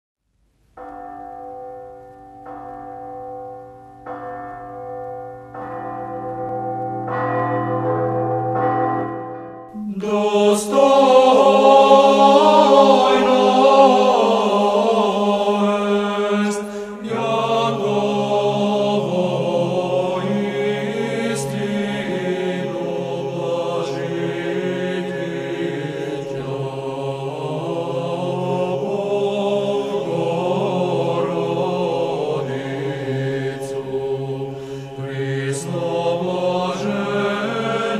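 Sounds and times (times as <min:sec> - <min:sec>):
church bells ringing: 0:00.8 - 0:37.9
choir chanting: 0:09.7 - 0:37.9.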